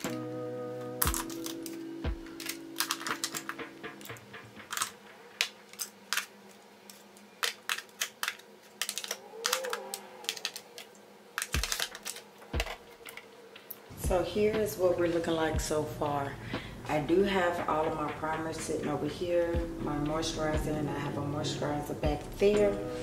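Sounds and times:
background music: 0:00.0 - 0:06.3, 0:11.4 - 0:23.0.

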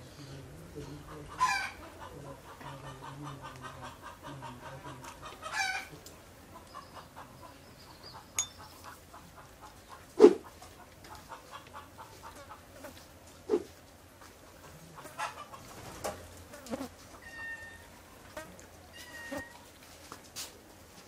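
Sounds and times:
chickens clucking: 0:00.4 - 0:18.2.

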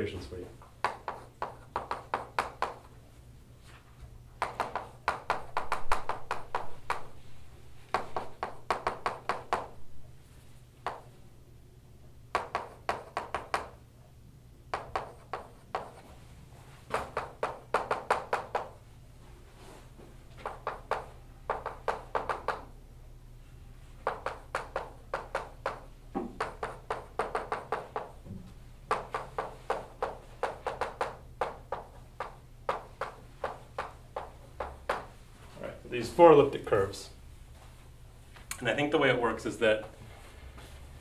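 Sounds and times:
chalk tapping on blackboard: 0:00.8 - 0:02.9, 0:04.4 - 0:09.8, 0:10.8 - 0:11.1, 0:12.3 - 0:13.8, 0:14.7 - 0:16.1, 0:16.9 - 0:18.8, 0:20.3 - 0:22.7, 0:24.0 - 0:28.2, 0:28.9 - 0:35.2.

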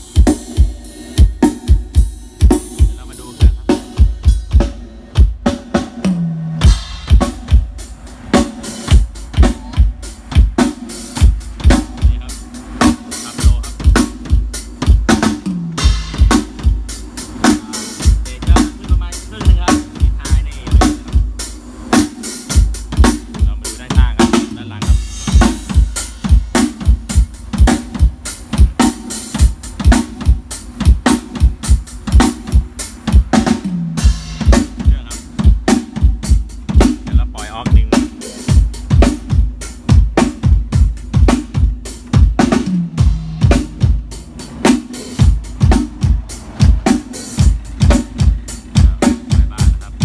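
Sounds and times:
bass drum and snare hits: 0:00.0 - 0:50.0.

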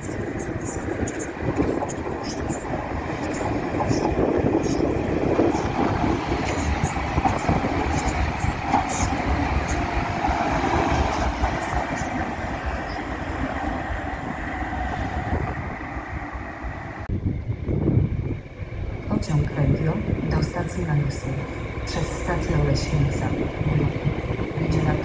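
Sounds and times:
electric train rolling past: 0:00.0 - 0:25.0.

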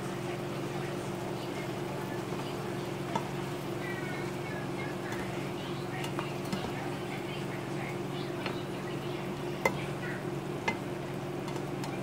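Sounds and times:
food sizzling in a pan: 0:00.0 - 0:12.0
steady low hum: 0:00.0 - 0:12.0
spatula knocking against pan: 0:03.1 - 0:03.6, 0:05.0 - 0:07.0, 0:08.2 - 0:12.0.

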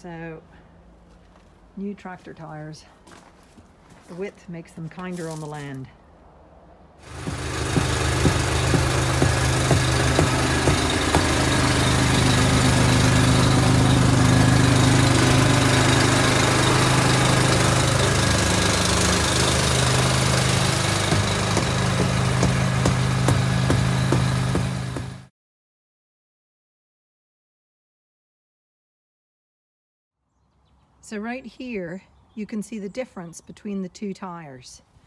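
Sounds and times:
engine idling: 0:07.0 - 0:25.3.

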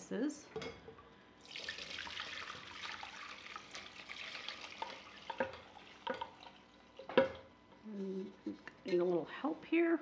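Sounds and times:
liquid pouring through strainer: 0:01.4 - 0:07.0.

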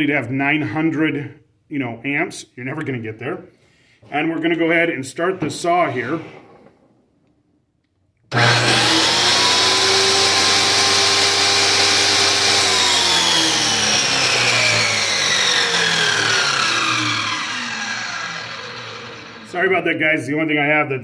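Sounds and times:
circular saw motor whine: 0:08.3 - 0:19.8.

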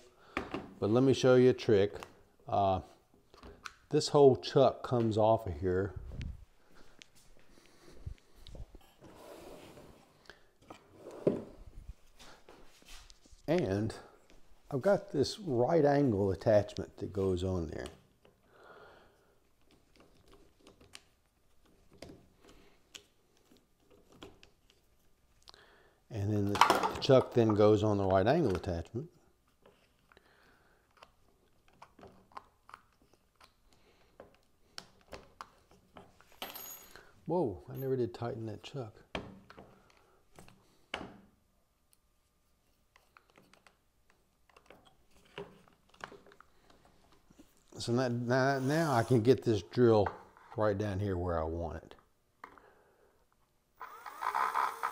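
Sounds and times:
drill chuck clicking: 0:53.8 - 0:54.9.

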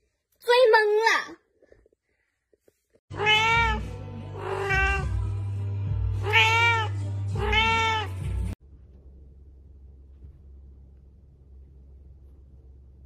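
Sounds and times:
cat meowing: 0:03.1 - 0:05.2, 0:06.2 - 0:08.3
steady low hum: 0:08.6 - 0:13.0.

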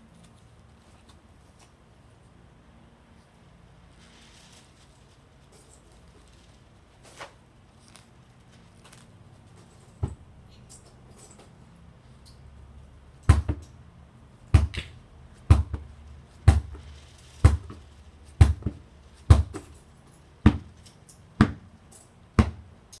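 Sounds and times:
ball caught in gloves: 0:13.3 - 0:13.6
football bouncing on hard floor: 0:13.3 - 0:13.6, 0:15.5 - 0:15.9, 0:16.5 - 0:16.8, 0:17.4 - 0:17.8, 0:18.4 - 0:19.6, 0:20.4 - 0:20.7, 0:21.4 - 0:21.7, 0:22.4 - 0:22.6.

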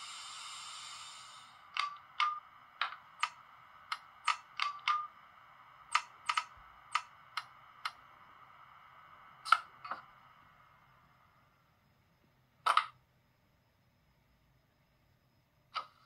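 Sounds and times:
switch and relay clicks: 0:01.7 - 0:05.1, 0:05.9 - 0:08.0.

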